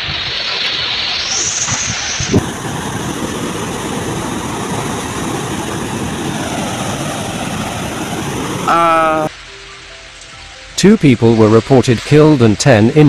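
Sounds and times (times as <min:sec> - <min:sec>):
wind in wet foliage: 0:00.0 - 0:12.7
fast-flowing river roaring: 0:02.4 - 0:09.3.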